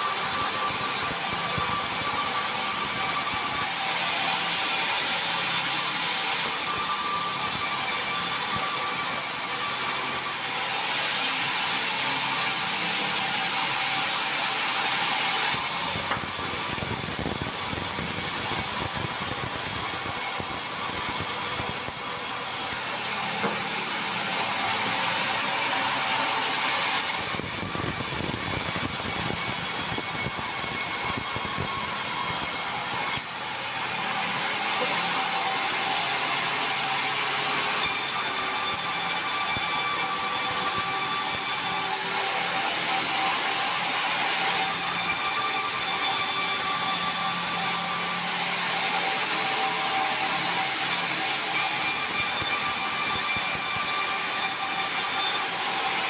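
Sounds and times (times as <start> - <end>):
band saw cutting timber: 0.0 - 56.0.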